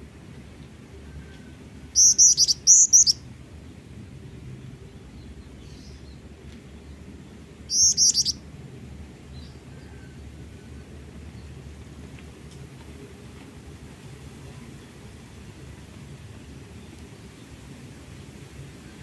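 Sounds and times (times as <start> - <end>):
bird singing rapid high notes: 2.0 - 3.2, 7.7 - 8.4.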